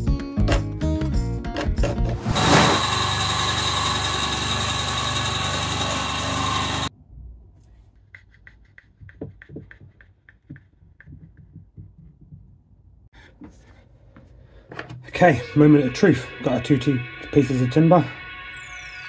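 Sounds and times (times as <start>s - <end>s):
bandsaw cutting wood: 1.9s - 6.9s.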